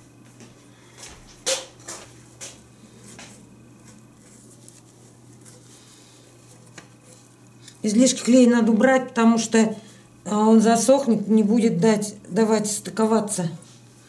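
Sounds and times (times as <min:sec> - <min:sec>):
rag rubbing wood: 0:02.9 - 0:07.4.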